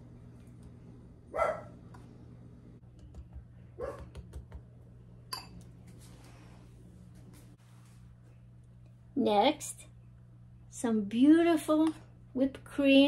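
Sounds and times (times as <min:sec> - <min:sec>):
spoon clinking ceramic bowl: 0:05.3 - 0:05.6.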